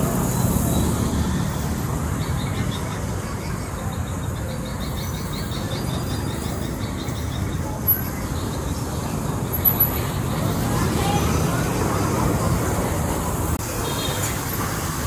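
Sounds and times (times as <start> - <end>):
passing traffic rumble: 0.0 - 15.0.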